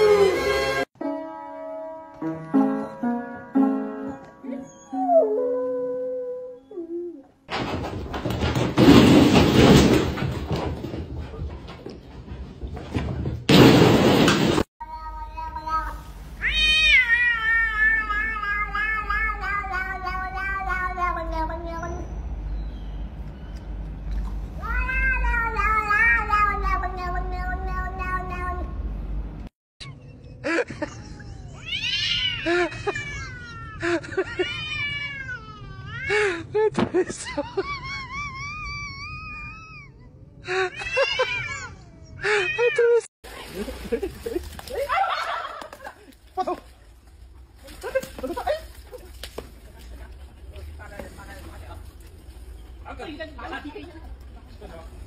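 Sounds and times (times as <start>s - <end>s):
cats yowling: 14.8s - 22.2s, 24.6s - 28.7s, 31.0s - 36.1s, 37.6s - 42.8s.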